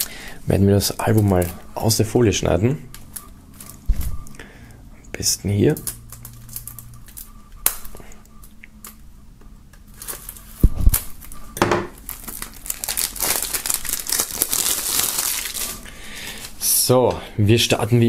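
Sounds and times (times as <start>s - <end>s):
plastic film crinkling and tearing: 5.7s - 8.0s, 9.9s - 11.4s, 12.0s - 16.7s
blade slitting shrink-wrap foil: 12.1s - 16.5s.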